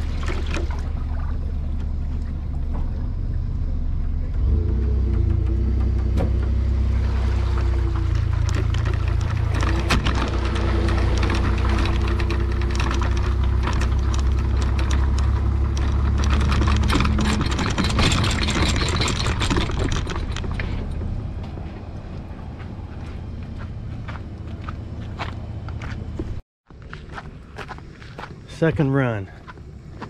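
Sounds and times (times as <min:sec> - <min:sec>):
engine idling: 0:00.0 - 0:26.2
metal trailer rattling on concrete: 0:07.6 - 0:21.5.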